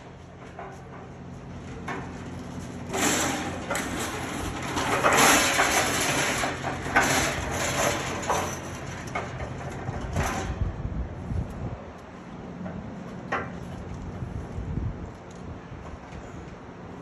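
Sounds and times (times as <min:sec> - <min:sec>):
casters rolling over concrete: 0:00.4 - 0:10.5.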